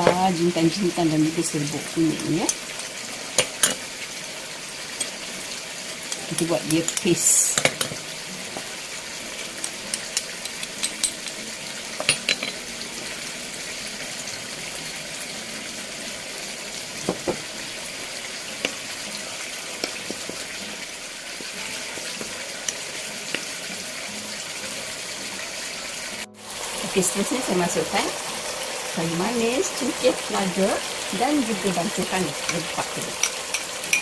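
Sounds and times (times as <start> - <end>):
food sizzling in oil: 0.0 - 34.0
metal spoon clinking ceramic bowl: 9.9 - 11.4, 12.0 - 12.6, 33.2 - 34.0.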